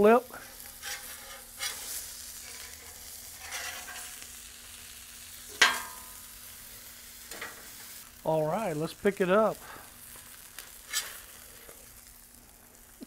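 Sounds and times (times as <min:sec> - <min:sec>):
fish sizzling on griddle: 0:00.0 - 0:13.0
metal spatula clanking on griddle: 0:00.8 - 0:04.2, 0:05.5 - 0:06.2.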